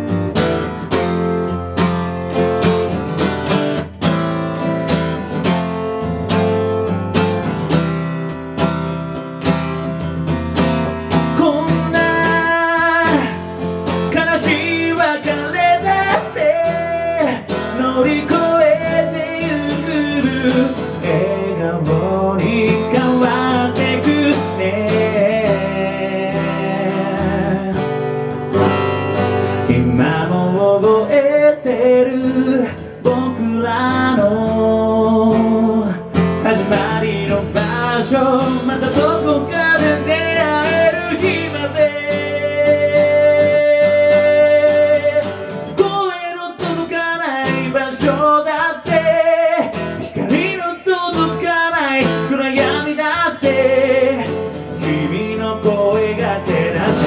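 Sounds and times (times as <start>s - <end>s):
strummed acoustic guitar: 0.0s - 57.0s
man singing: 9.7s - 28.8s, 29.5s - 57.0s.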